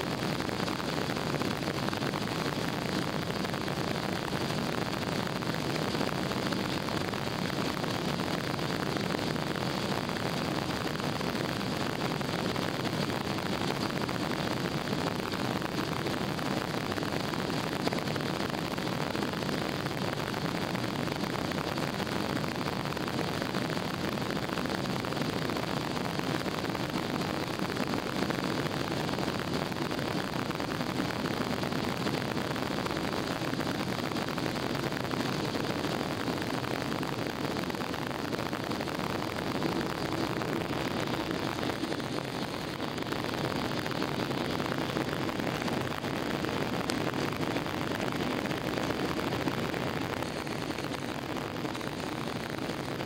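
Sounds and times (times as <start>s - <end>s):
jet engines roaring in cabin: 32.2s - 53.0s.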